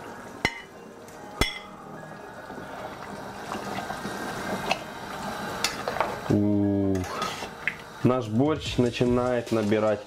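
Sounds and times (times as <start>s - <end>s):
faint background music: 0.0s - 10.0s
liquid bubbling and splashing: 2.5s - 5.6s.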